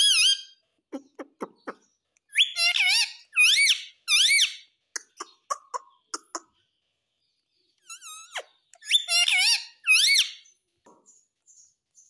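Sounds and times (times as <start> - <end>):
parakeet squeaky calls: 0.0 - 0.6, 1.4 - 5.9, 7.9 - 10.5.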